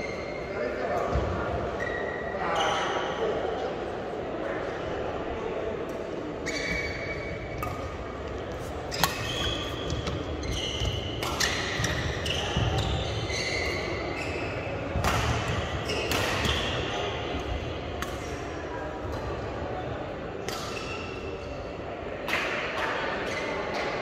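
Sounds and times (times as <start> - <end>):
shoes squeaking on court: 6.4 - 16.7
racket striking shuttlecock: 8.6 - 12.0.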